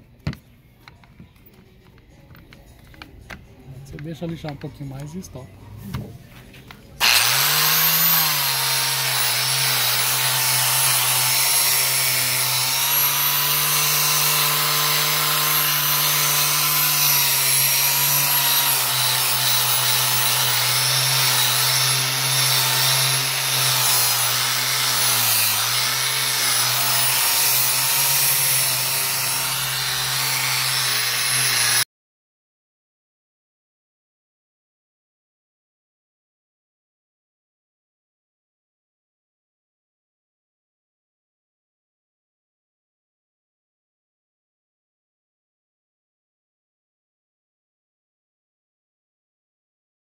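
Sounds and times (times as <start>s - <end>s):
angle grinder sanding wood: 7.0s - 31.8s.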